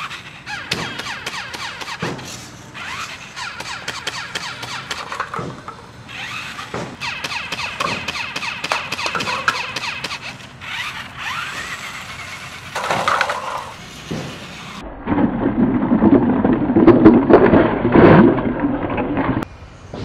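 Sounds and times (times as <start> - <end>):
toy tank running: 0.0 - 14.8
paper cups clattering and tumbling: 12.8 - 13.8.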